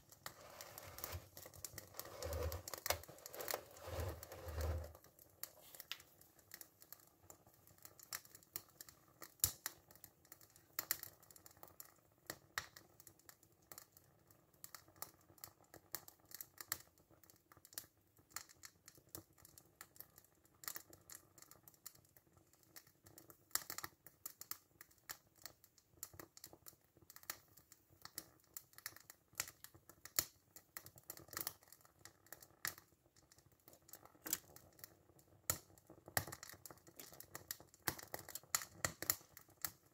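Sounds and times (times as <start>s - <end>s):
faint ticks and crackles: 0.0s - 39.9s.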